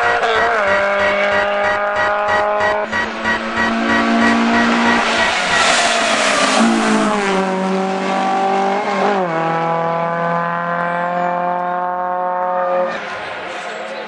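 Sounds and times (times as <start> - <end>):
car accelerating at full throttle: 0.0 - 13.9
rally car passing: 0.0 - 13.9.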